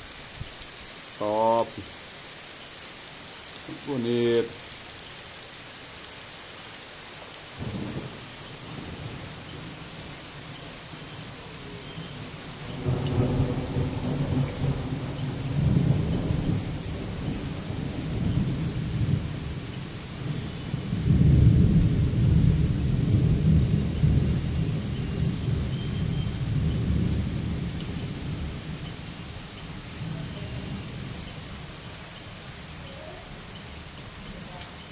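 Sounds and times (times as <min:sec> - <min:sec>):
heavy rain falling: 0:00.0 - 0:34.9
thunder rumbling: 0:07.6 - 0:32.8.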